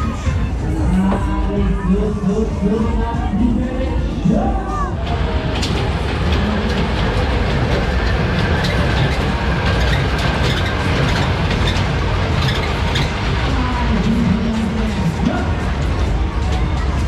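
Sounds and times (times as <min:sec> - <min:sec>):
train ride cars rumbling: 0:00.0 - 0:17.0
wheels clicking over rail joints: 0:05.2 - 0:17.0.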